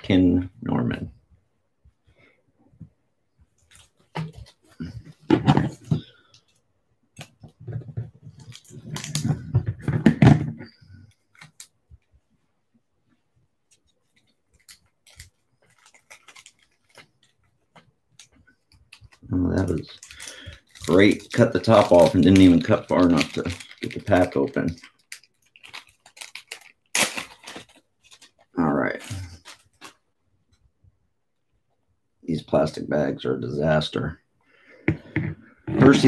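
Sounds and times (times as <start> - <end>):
plastic crinkling with knocks: 7.2 - 12.1, 13.7 - 30.0.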